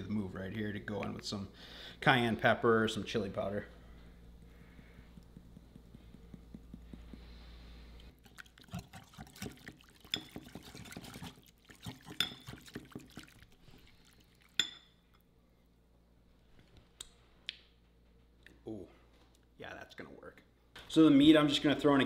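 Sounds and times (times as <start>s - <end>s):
whisk sloshing liquid: 8.1s - 14.8s
whisk wires clinking on bowl: 8.2s - 13.3s, 14.5s - 15.2s.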